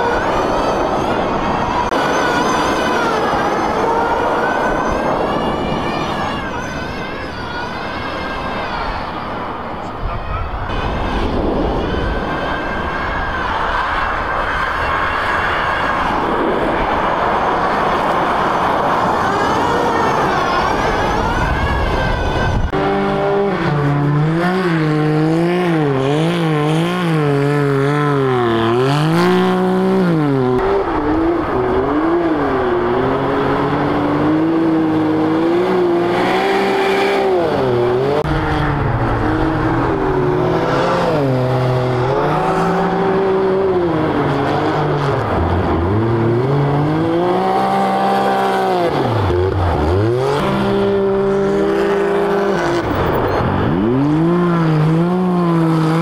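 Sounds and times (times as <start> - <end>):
engine revving: 17.8 - 56.0.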